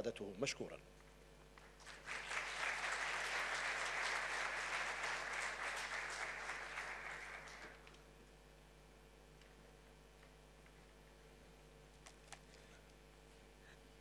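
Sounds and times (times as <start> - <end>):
audience applauding: 1.6 - 7.9.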